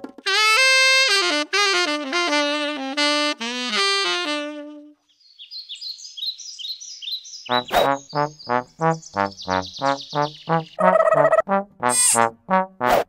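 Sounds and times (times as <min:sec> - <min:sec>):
solo saxophone melody: 0:00.0 - 0:05.0
faint high chirping: 0:05.1 - 0:10.9.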